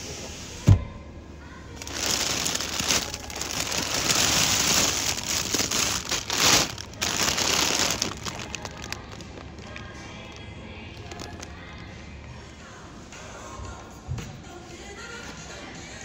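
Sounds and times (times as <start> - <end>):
plastic bags crinkling: 1.7 - 11.9.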